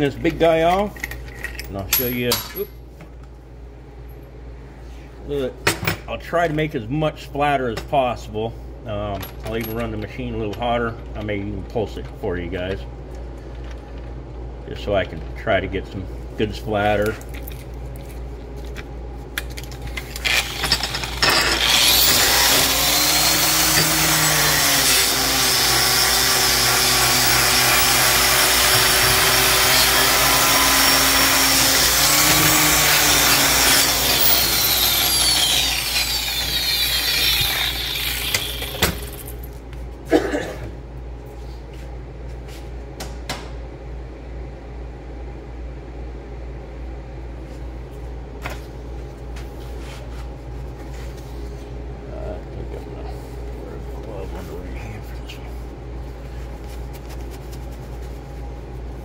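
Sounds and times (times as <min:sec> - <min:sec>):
angle grinder grinding steel: 0:20.2 - 0:39.3
grinder spinning down whine: 0:20.3 - 0:39.1.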